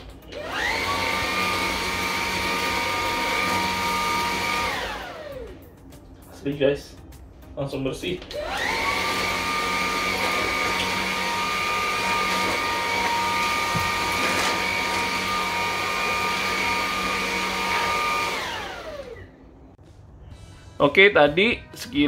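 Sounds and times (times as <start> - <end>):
vacuum cleaner motor whine: 0.2 - 5.6, 8.3 - 19.6.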